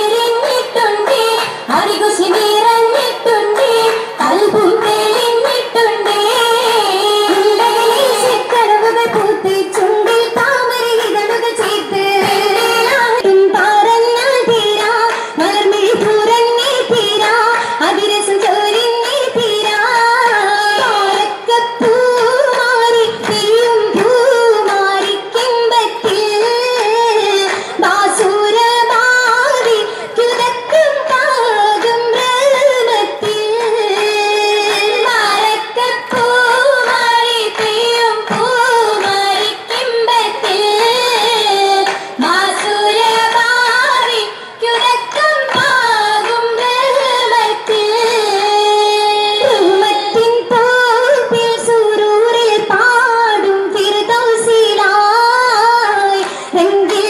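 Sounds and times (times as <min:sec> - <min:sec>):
girls singing together: 0:00.0 - 0:57.0
rhythmic hand-clapping: 0:00.0 - 0:57.0.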